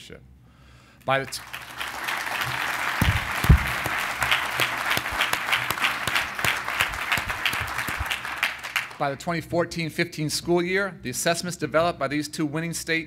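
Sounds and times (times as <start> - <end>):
audience applauding: 1.2 - 9.1
low thumps: 3.0 - 4.0.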